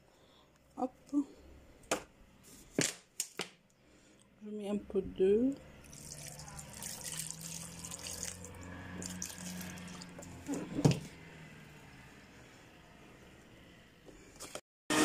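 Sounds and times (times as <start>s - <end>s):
water pouring into blender jar: 5.7s - 10.3s.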